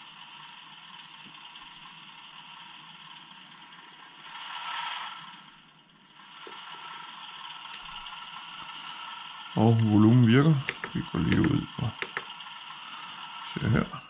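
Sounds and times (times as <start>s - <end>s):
simulated engine through loudspeaker: 0.0s - 14.0s.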